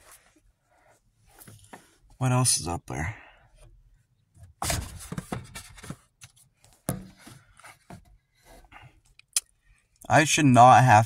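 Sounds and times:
phone handling rustles and knocks: 4.4 - 8.2.

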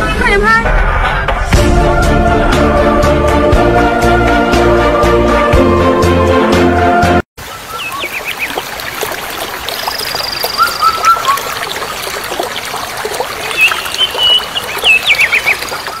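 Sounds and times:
birds chirping: 7.4 - 16.0
water rushing over cascade: 7.4 - 16.0.

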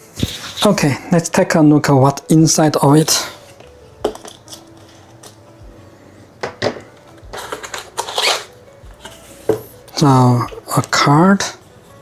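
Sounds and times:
cardboard and tape scraping: 0.0 - 0.9, 7.3 - 9.6.

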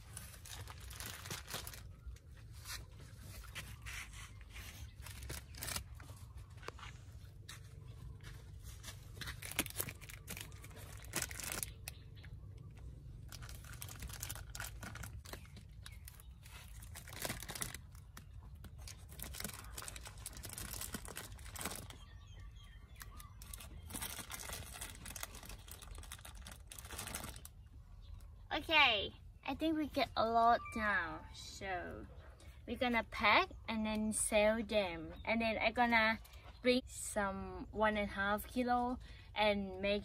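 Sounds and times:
plastic bag crinkling: 0.0 - 6.6, 8.6 - 12.1, 13.2 - 22.2, 22.9 - 27.7.

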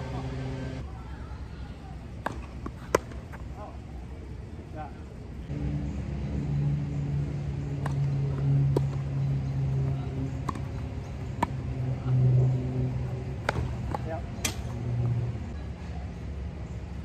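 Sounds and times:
steady low hum: 0.0 - 17.0
tennis ball hit by racket: 7.8 - 9.0, 10.3 - 11.6, 13.4 - 14.8.

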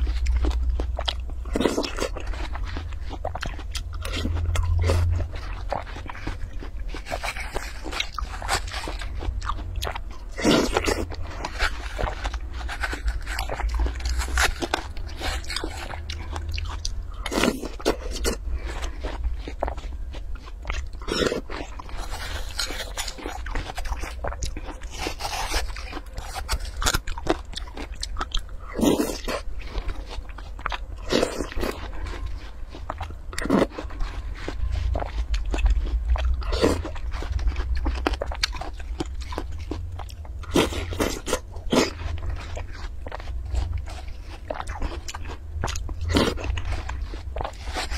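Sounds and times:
chewing: 0.0 - 47.9
steady low hum: 0.0 - 47.9
spoon scraping watermelon: 10.5 - 16.1, 21.2 - 27.0.

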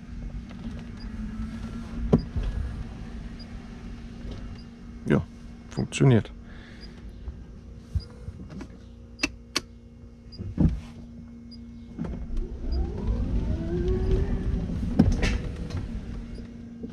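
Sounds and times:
electric motor whining: 0.0 - 5.9, 11.4 - 16.9
pumps humming: 0.0 - 16.9.

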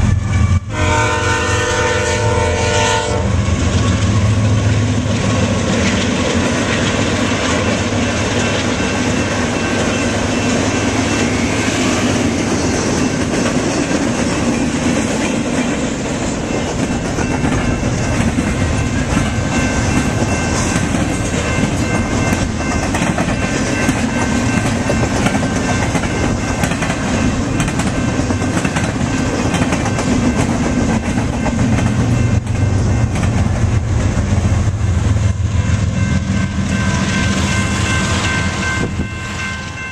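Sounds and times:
train rumbling past: 0.0 - 39.9
crossing bell ringing: 7.2 - 33.8, 35.2 - 39.9.

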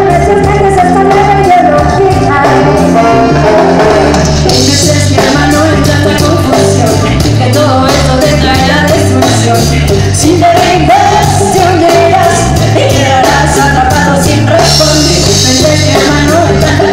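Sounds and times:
saxophone: 0.0 - 5.8
ska band playing: 0.0 - 16.9
trombone: 2.4 - 4.8.

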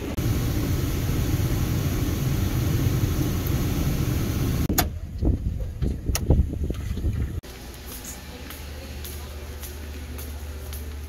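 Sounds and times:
car driving: 0.0 - 4.7.

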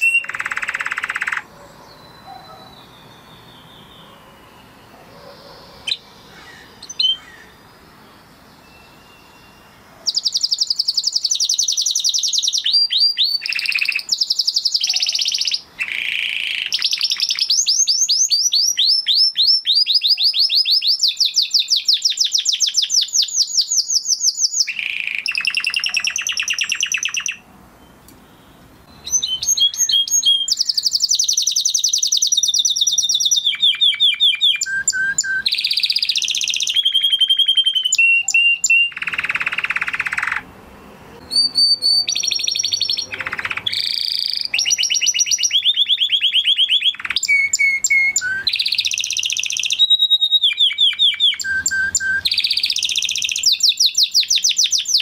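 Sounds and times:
canary singing trills: 0.0 - 40.5, 41.2 - 55.0.

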